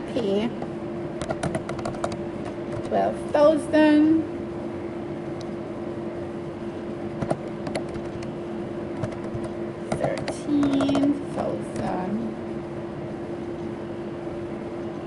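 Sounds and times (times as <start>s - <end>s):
low electrical hum: 0.0s - 15.0s
keyboard and mouse clicks: 1.2s - 2.9s, 7.2s - 8.3s, 9.0s - 11.1s.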